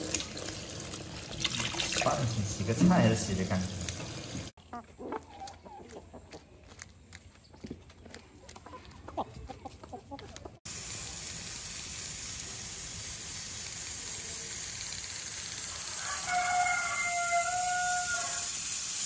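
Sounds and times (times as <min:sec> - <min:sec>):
steady hiss: 0:10.7 - 0:16.3, 0:17.4 - 0:19.0
rooster crowing: 0:15.7 - 0:18.6.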